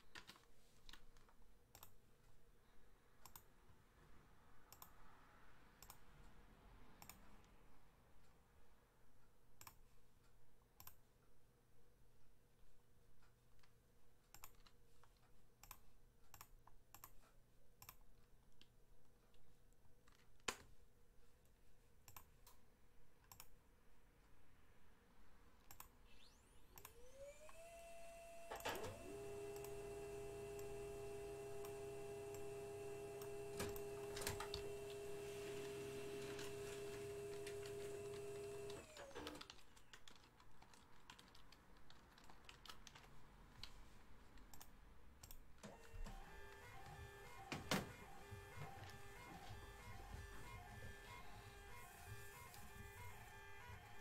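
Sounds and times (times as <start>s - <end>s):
computer mouse clicks: 0.0s - 2.0s, 3.2s - 3.5s, 4.7s - 5.0s, 5.8s - 6.0s, 7.0s - 7.2s, 9.6s - 9.9s, 10.8s - 11.0s, 13.6s - 18.7s, 22.0s - 22.6s, 23.2s - 23.6s, 25.6s - 27.6s, 28.5s - 43.8s, 44.4s - 54.0s
label printer motor running: 27.1s - 39.1s, 45.7s - 54.0s.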